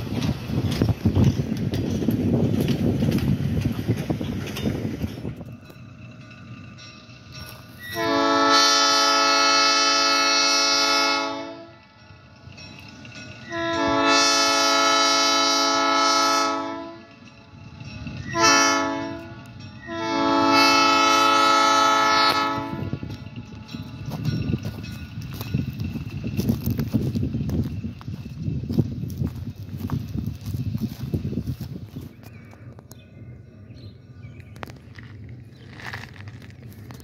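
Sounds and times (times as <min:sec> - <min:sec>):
train low rumble: 0:00.0 - 0:37.0
locomotive air horn blasts: 0:07.8 - 0:11.8, 0:13.5 - 0:17.1, 0:18.3 - 0:23.1.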